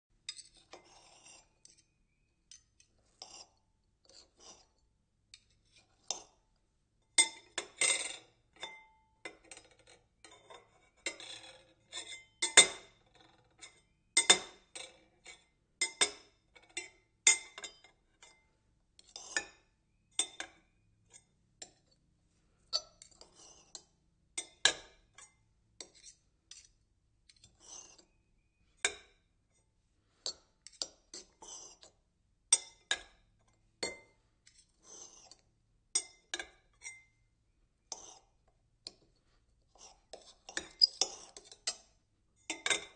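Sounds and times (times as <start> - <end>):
knife clinking and clattering: 42.5 - 42.9.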